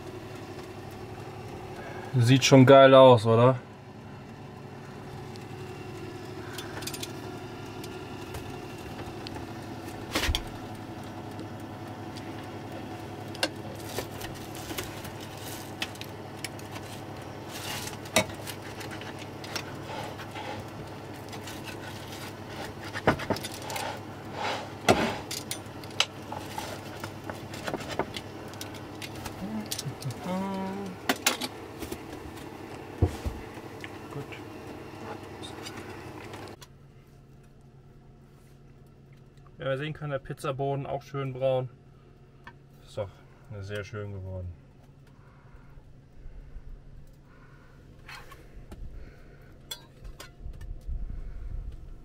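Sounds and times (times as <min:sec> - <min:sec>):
steady low hum: 0:00.0 - 0:52.0
pizza cutter crunching crust: 0:06.4 - 0:36.6.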